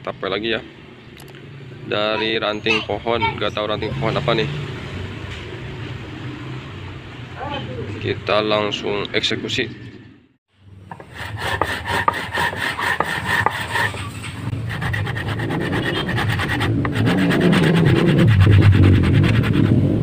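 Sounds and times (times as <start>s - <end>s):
hand saw cutting branch: 10.9s - 19.6s
low rumble: 14.4s - 20.0s.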